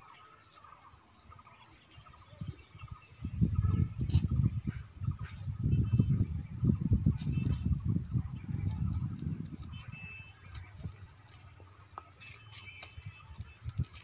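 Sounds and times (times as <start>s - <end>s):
faint high chirps: 0.0s - 14.0s
light clicks of lead line: 5.0s - 14.0s
net mesh rustling: 8.4s - 14.0s.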